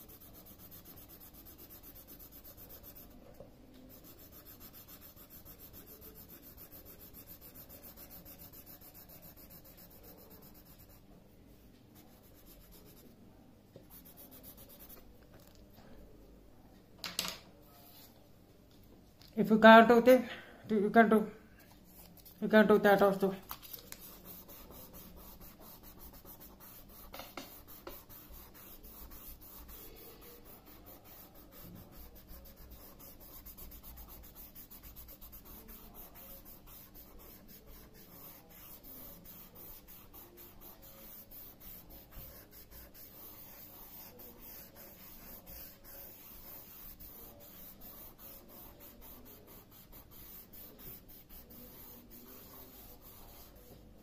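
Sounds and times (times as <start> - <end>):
paper rubbing on drawing paper: 0.0 - 3.2, 3.9 - 11.0, 23.5 - 53.8.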